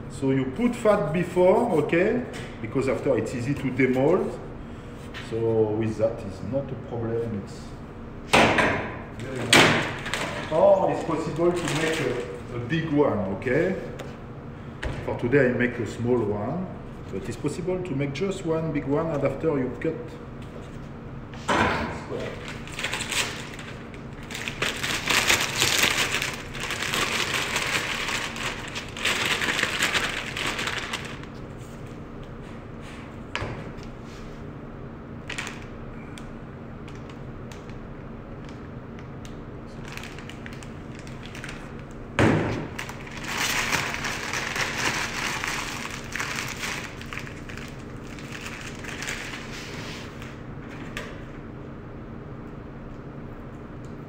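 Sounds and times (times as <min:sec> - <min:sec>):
plastic piping bag rustling: 0:11.0 - 0:12.5, 0:22.4 - 0:31.5, 0:39.7 - 0:42.0, 0:42.7 - 0:50.3.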